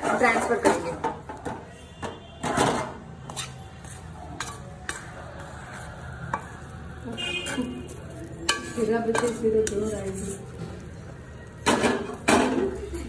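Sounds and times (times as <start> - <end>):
spatula scraping steel: 3.2 - 6.6, 7.4 - 10.8
soft sizzle of hot fat: 3.5 - 13.0.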